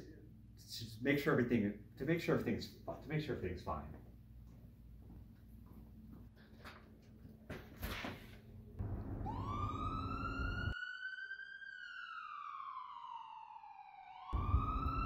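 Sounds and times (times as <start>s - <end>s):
low rumble: 8.8s - 10.7s, 14.4s - 15.0s
emergency vehicle siren wailing: 8.8s - 15.0s.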